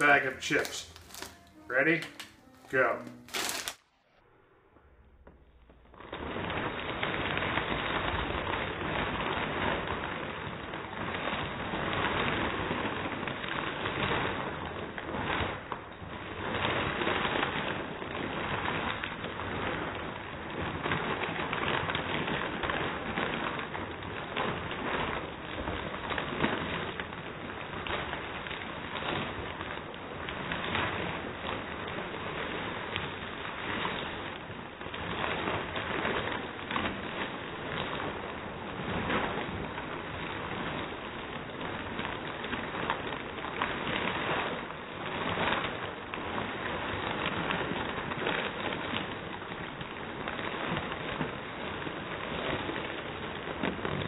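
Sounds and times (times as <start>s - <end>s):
chip bag crinkling: 0.0s - 3.8s
chips crunching: 0.0s - 3.8s.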